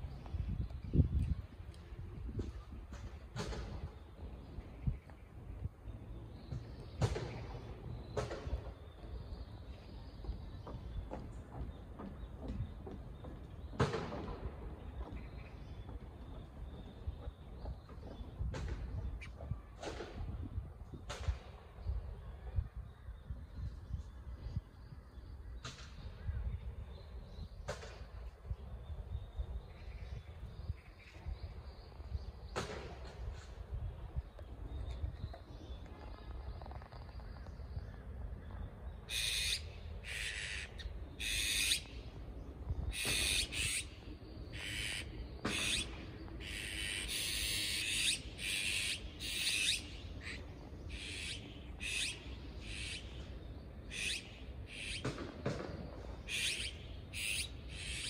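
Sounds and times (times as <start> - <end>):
magpies rasping calls: 39.1 - 41.9, 42.9 - 53.2, 53.8 - 55.0, 56.3 - 58.0.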